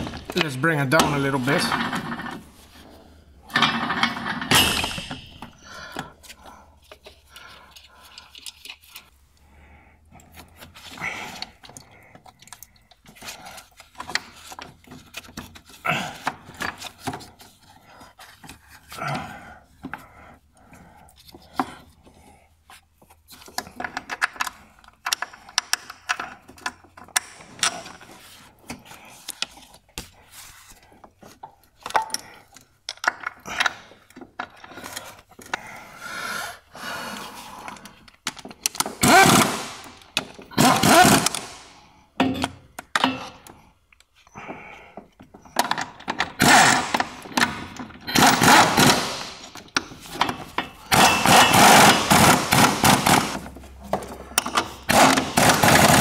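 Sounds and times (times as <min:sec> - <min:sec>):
hand tools clinking on metal: 0:48.0 - 0:53.0.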